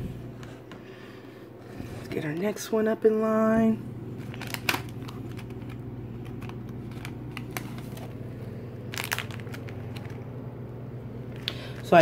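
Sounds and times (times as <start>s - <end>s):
steady low hum: 0.0s - 12.0s
plastic packaging crinkling: 4.1s - 10.6s, 11.2s - 12.0s.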